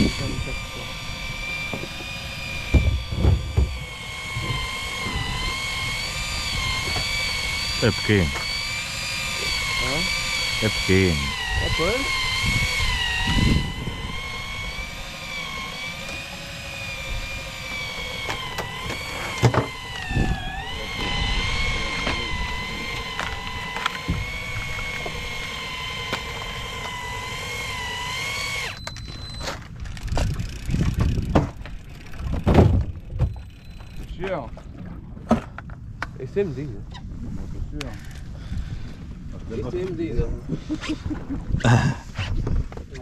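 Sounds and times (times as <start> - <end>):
fishing reel motor whining: 0.0 - 34.9, 37.8 - 39.4.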